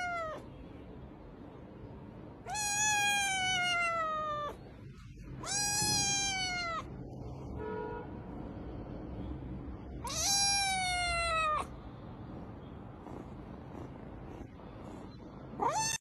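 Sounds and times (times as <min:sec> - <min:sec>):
kitten meowing: 0:00.0 - 0:00.4, 0:02.4 - 0:04.6, 0:05.2 - 0:07.2, 0:10.0 - 0:11.7, 0:15.6 - 0:16.0.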